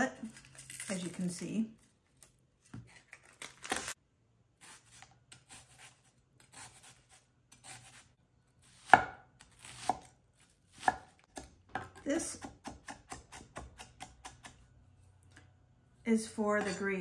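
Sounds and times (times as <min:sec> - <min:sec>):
knife chopping on wooden board: 0:08.8 - 0:10.1, 0:10.7 - 0:14.6.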